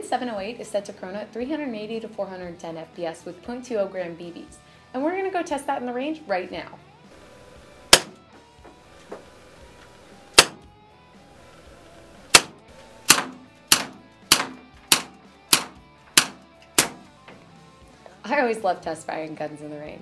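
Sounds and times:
airsoft revolver gas cracks: 7.9 - 8.2, 10.3 - 10.7, 12.3 - 17.1.

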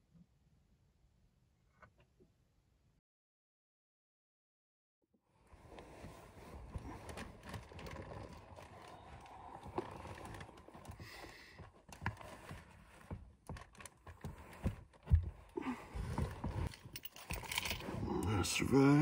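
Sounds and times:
bedding rustling: 5.4 - 19.0
knocks and bumps against seats: 9.8 - 17.0.

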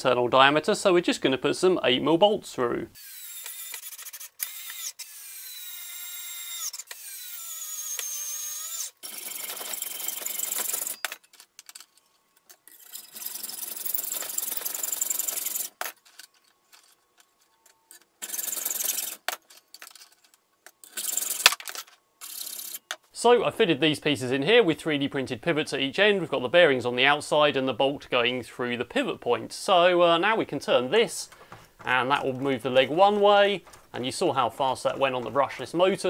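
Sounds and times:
cordless screwdriver motor whining: 3.0 - 11.1
hacksaw cutting metal: 3.0 - 11.2, 12.6 - 16.0, 18.2 - 20.0, 20.8 - 21.6.

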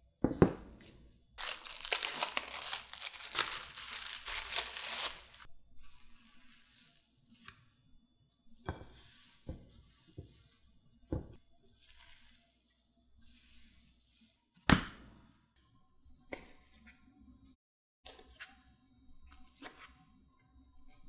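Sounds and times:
sticky dough tearing: 1.4 - 5.5.

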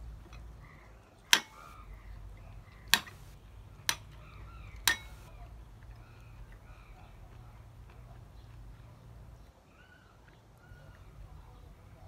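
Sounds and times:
metal spoon clinking glass bowl: 4.8 - 5.3.

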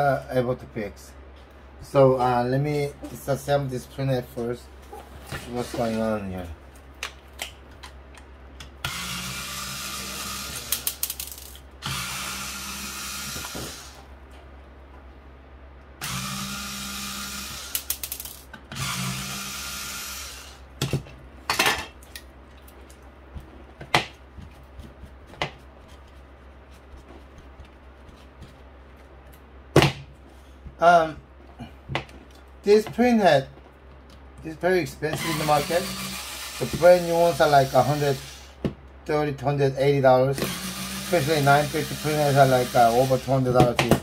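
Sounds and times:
electric screwdriver running: 8.8 - 11.0, 11.8 - 14.0, 16.0 - 20.6, 35.2 - 38.5, 40.4 - 43.2.

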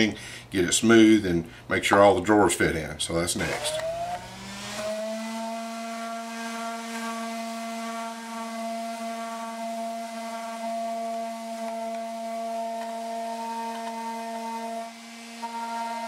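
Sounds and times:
electric orbit sander whining: 3.4 - 16.0.

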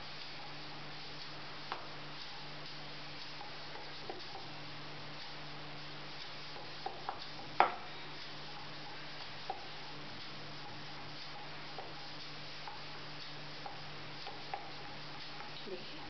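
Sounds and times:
steady low hum: 0.0 - 16.0
hands patting dough: 5.2 - 15.8.

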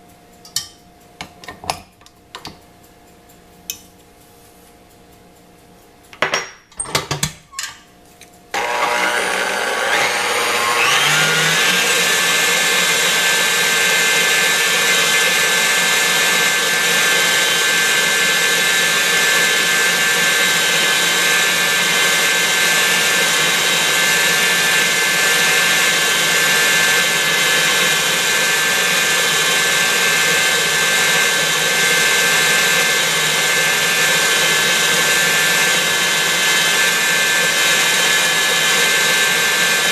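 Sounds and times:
stand mixer motor whining: 8.5 - 39.9.

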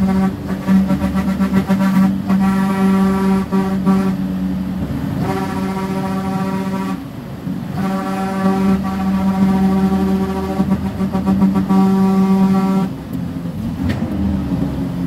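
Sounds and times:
truck horn blasts: 0.0 - 13.1.

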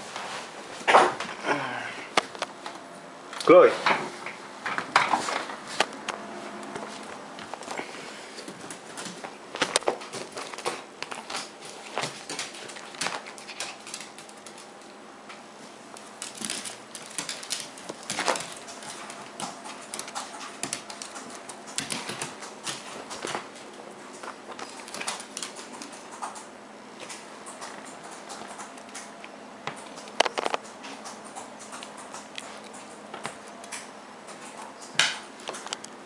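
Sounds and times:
dog claws tapping on wooden floor: 8.4 - 14.9, 16.0 - 23.5.

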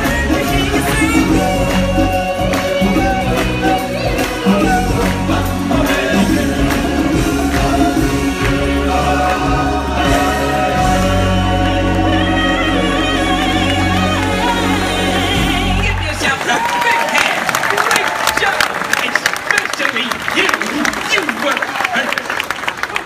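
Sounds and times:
group of voices singing: 0.0 - 16.0
band and percussion: 0.0 - 23.0.

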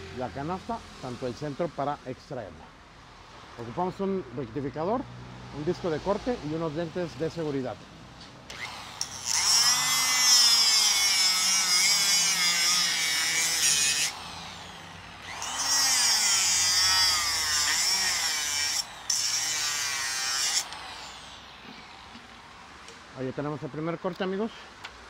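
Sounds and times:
angle grinder cutting steel: 8.5 - 23.0.

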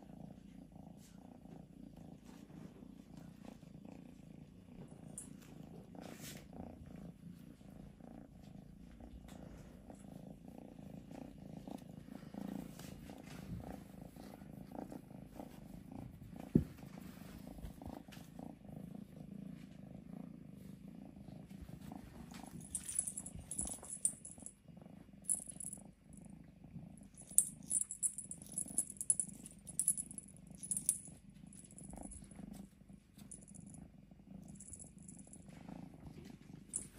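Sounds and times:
kitten purring: 0.0 - 36.9.

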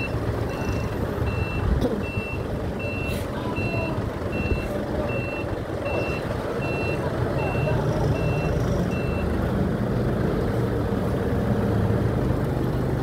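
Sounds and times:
reversing alarm beeping: 0.0 - 9.4
diesel engine rumble: 0.0 - 13.0.

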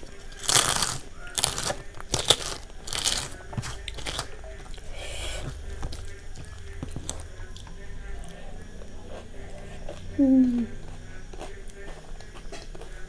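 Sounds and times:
crisp papad crunching by hand: 0.0 - 4.4.

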